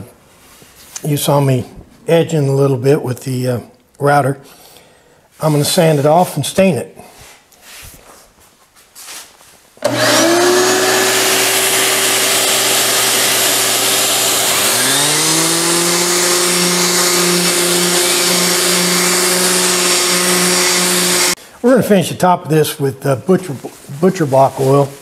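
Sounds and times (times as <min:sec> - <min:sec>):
random orbit sander running: 0:09.8 - 0:21.4
second motor spinning: 0:09.8 - 0:21.4.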